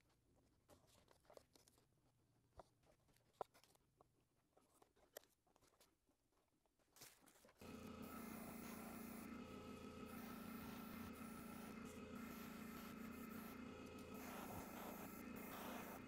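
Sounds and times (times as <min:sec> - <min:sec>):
steady hum and hiss: 0:07.6 - 0:16.0.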